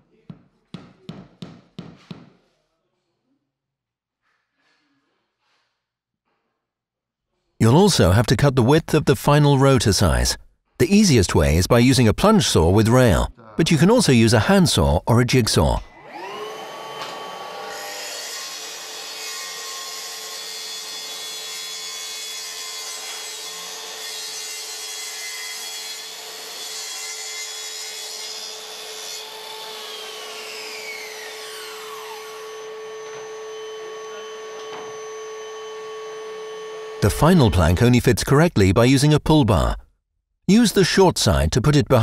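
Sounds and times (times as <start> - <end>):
circular saw cutting wood: 16.0 - 37.7.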